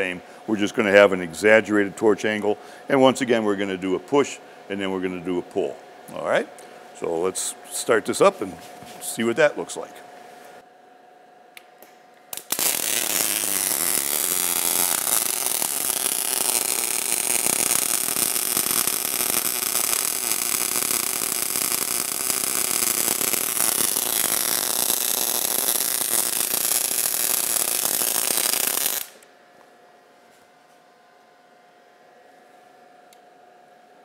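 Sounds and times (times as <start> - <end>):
welding arc crackling: 12.3 - 29.2.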